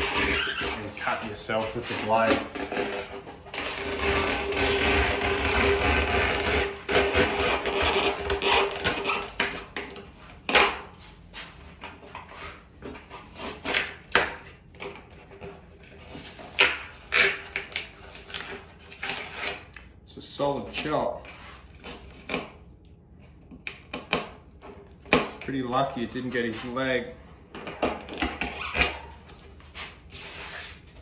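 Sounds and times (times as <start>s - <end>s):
sandpaper rubbing fiberglass: 0.0s - 9.3s, 28.5s - 31.0s
knife cracking and scraping fiberglass: 0.0s - 10.9s, 12.9s - 19.9s, 20.5s - 22.8s, 23.5s - 25.6s, 27.6s - 29.5s.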